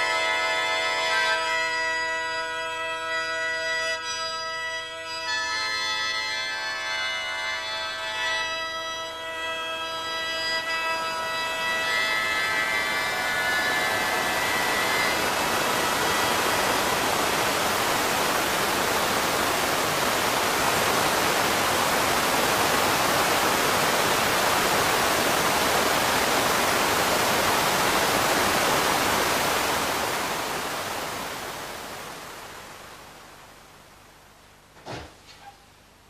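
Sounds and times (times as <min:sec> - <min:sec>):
waterfall rushing: 0:11.2 - 0:34.0.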